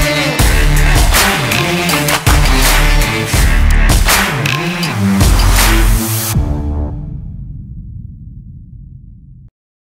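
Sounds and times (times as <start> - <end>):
loud beat with strong hits: 0.0 - 6.7.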